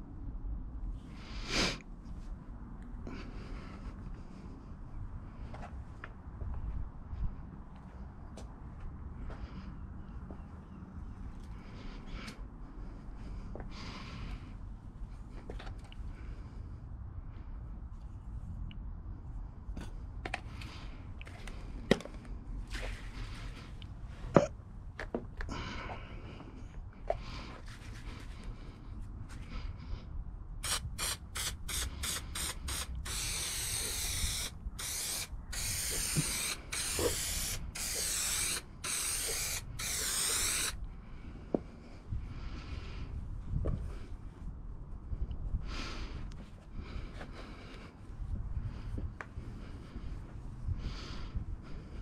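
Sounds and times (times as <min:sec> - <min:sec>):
aerosol can spraying: 0:30.6 - 0:40.8.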